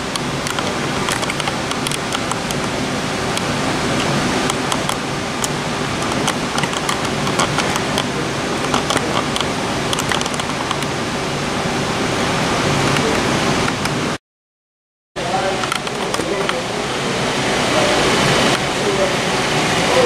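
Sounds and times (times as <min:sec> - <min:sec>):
wheels clicking over rails: 0:00.0 - 0:10.9.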